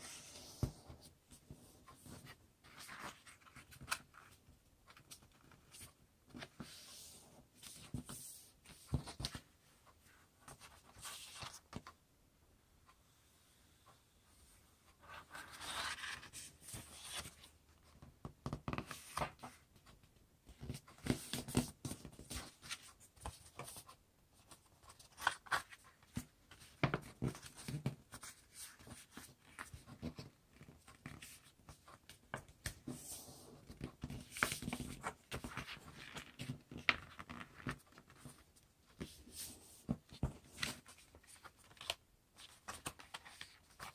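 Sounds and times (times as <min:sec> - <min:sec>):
paper being folded and creased: 0:15.0 - 0:17.5, 0:20.6 - 0:38.4, 0:39.0 - 0:43.9.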